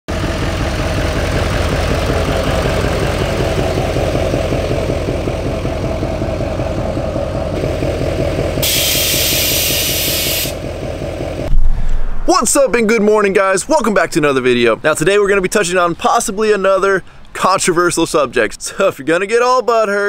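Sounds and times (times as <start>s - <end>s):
diesel truck engine idling: 0.1s - 11.5s
compressed air hissing: 8.6s - 10.6s.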